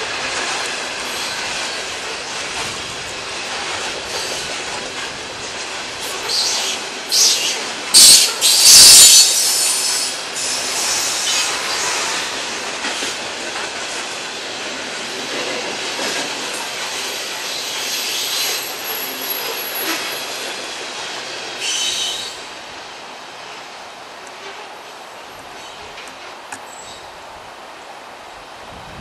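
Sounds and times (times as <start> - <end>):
train wheels rumbling and clattering: 0.0 - 27.6
high wheel squeal: 6.2 - 12.4, 21.6 - 22.4.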